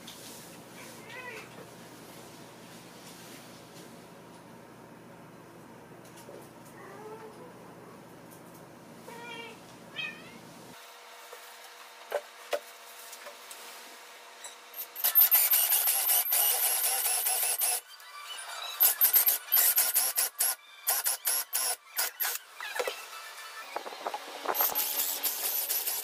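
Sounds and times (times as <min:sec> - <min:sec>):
drill bit boring into board: 0:14.8 - 0:17.8, 0:24.5 - 0:26.0.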